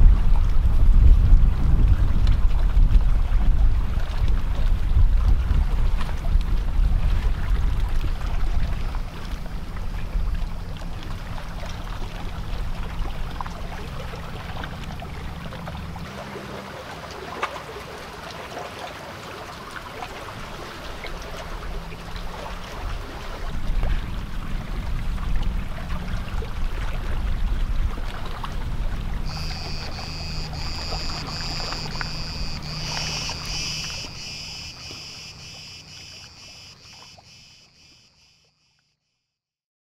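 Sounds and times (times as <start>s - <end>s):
boat engine hum: 2.6s - 38.2s
cicadas buzzing: 29.3s - 38.8s.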